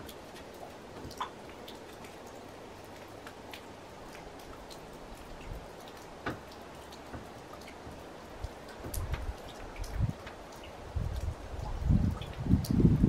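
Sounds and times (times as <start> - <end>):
faint ticks and taps: 0.0 - 12.8.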